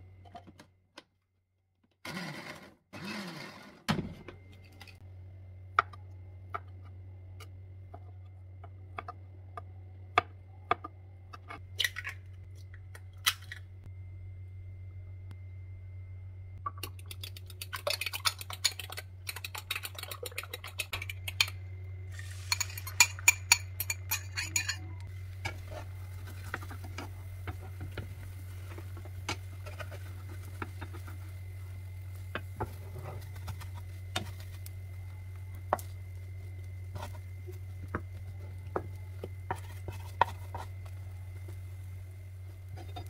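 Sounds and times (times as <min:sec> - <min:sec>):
steady low hum: 0:04.1 - 0:43.0
fork beating eggs in glass bowl: 0:16.8 - 0:21.5.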